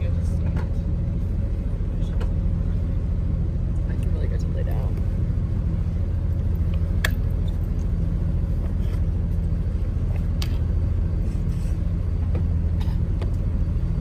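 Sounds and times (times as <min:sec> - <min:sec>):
boat engine droning: 0:00.0 - 0:14.0.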